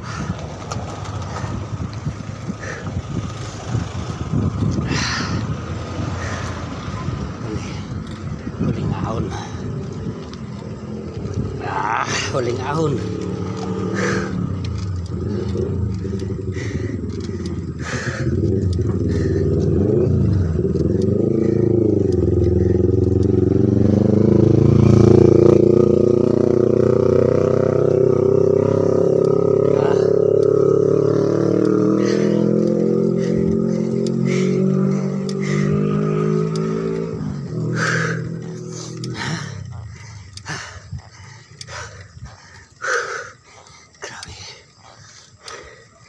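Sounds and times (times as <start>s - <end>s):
motorcycle engine climbing: 0.0s - 46.0s.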